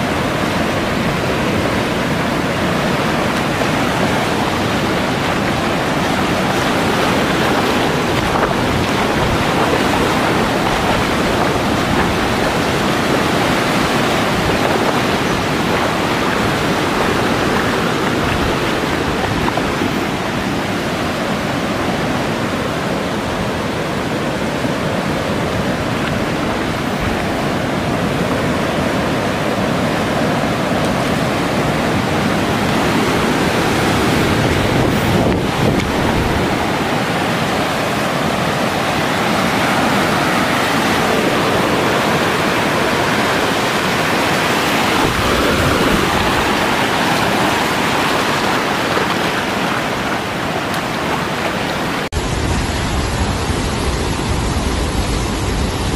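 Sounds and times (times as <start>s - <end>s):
floodwater rushing: 0.0s - 55.9s.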